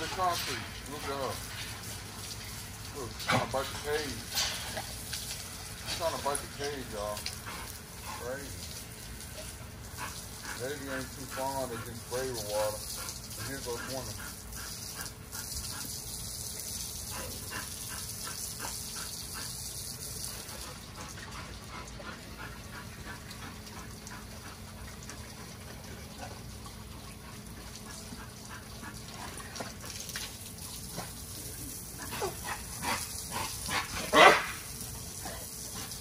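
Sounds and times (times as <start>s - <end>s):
hose spraying water on concrete: 0.0s - 26.6s, 27.2s - 36.0s
dogs barking: 32.0s - 36.0s.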